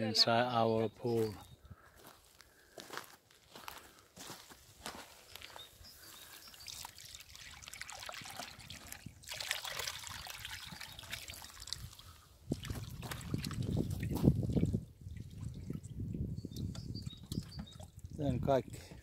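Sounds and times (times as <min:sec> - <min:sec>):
small splashes: 0:06.2 - 0:16.0
water pouring from bucket: 0:06.3 - 0:16.0.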